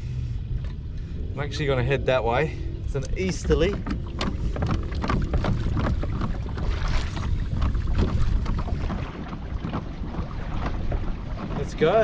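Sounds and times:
wind buffeting microphone: 0:00.0 - 0:12.0
waves lapping against kayak hull: 0:00.2 - 0:12.0.

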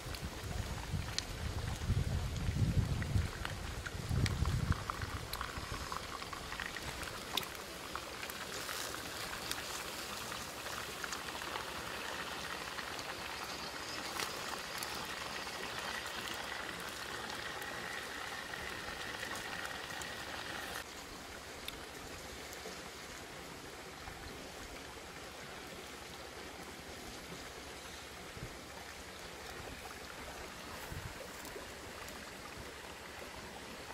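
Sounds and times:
meat sizzling in a pot: 0:04.4 - 0:20.9.

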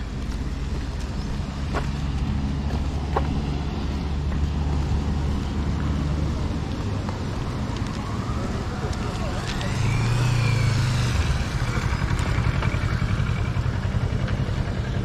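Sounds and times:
motorcycle engine running: 0:09.1 - 0:15.0.

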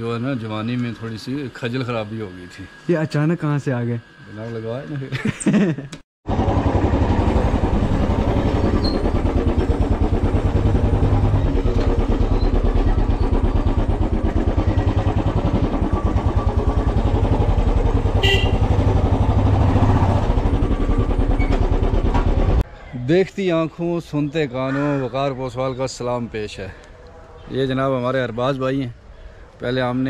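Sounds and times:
motorcycle engine thumping: 0:06.4 - 0:22.6.

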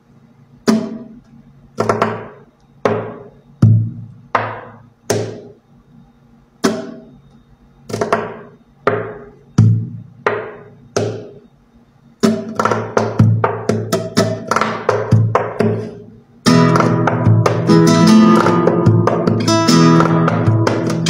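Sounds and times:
nylon-string guitar strummed: 0:12.2 - 0:21.0.

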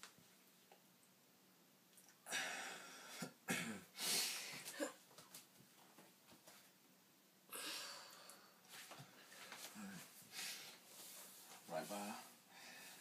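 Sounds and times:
person breathing hard: 0:12.4 - 0:13.0.

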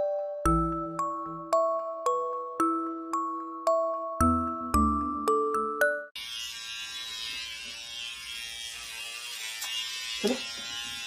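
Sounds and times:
electric razor buzzing: 0:06.2 - 0:11.0.

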